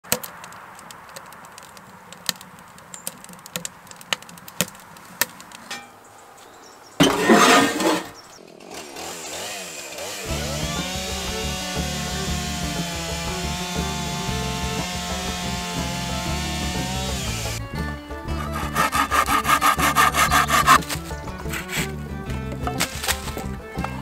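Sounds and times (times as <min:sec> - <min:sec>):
chainsaw engine running: 0:08.6 - 0:17.6, 0:18.4 - 0:21.9, 0:22.7 - 0:23.5
chainsaw starting clicks: 0:18.4 - 0:21.9, 0:22.5 - 0:24.0.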